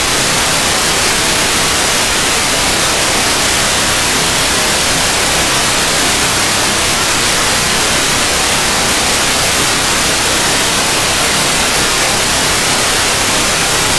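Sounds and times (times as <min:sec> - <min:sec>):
radio static hiss: 0:00.0 - 0:13.9.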